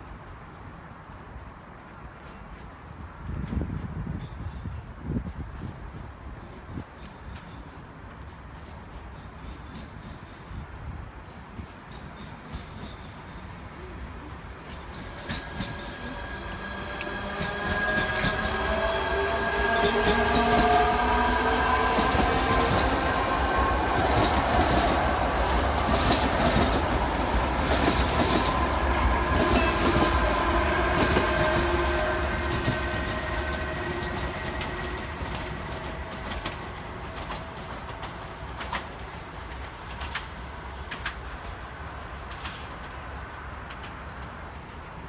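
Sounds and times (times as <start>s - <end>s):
train wheels rumbling: 0.0s - 45.0s
electric train whine: 4.0s - 45.0s
wheels clicking over rail joints: 11.4s - 43.0s.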